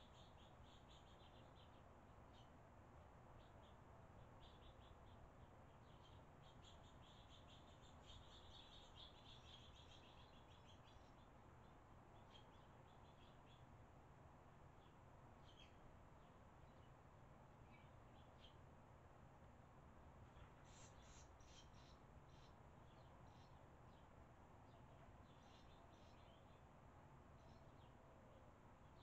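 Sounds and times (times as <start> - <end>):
swallows chirping: 0.0 - 2.6, 3.4 - 13.7, 14.8 - 17.0, 20.3 - 26.7
low background hiss: 0.0 - 29.0.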